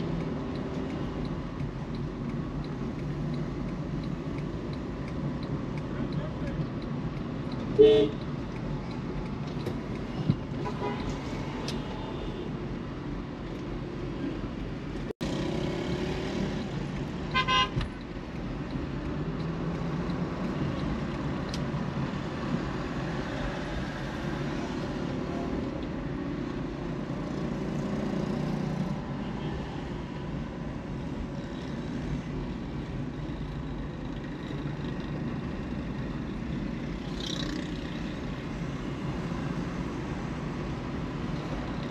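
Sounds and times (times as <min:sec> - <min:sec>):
road and traffic noise: 0:00.0 - 0:41.9
car horn toots: 0:07.8 - 0:08.2, 0:17.3 - 0:17.8.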